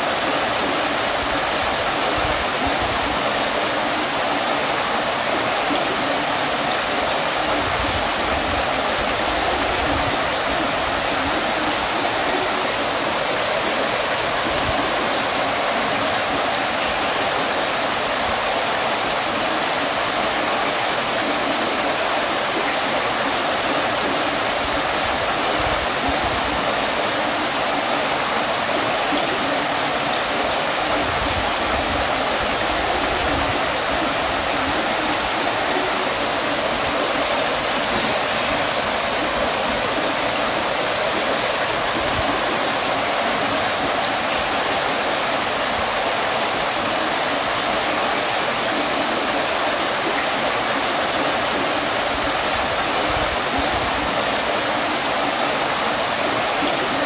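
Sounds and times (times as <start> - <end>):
water fountain splashing: 0.0 - 57.0.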